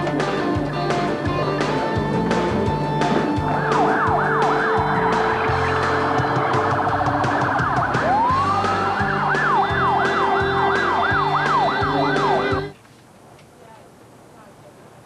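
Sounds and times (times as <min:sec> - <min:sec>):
low pulsing beat: 0:00.0 - 0:12.7
electronic police siren: 0:03.4 - 0:12.7.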